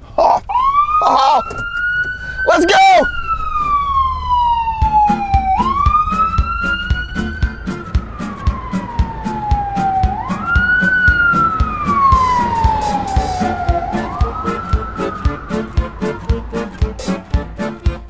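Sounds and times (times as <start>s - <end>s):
ambulance siren wailing: 0.4s - 18.0s
background music with steady beat: 4.7s - 18.0s.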